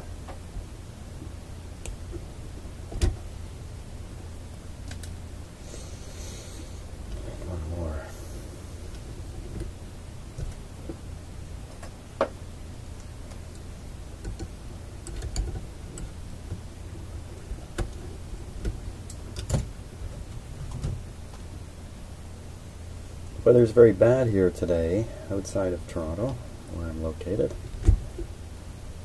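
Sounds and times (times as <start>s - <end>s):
low hum: 0.0s - 29.0s
tools clicking on wires: 14.2s - 16.2s.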